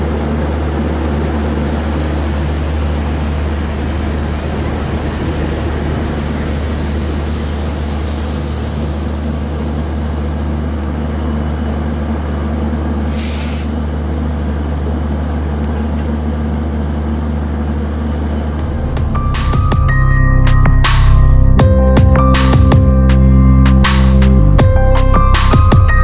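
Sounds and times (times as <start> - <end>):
diesel locomotive engine drone: 0.0 - 26.0
air hiss: 5.9 - 11.0, 13.0 - 13.8.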